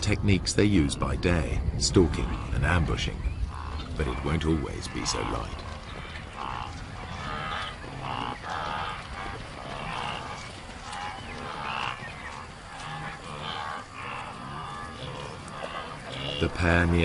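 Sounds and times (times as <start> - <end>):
wildebeest grunting calls: 3.5 - 17.0.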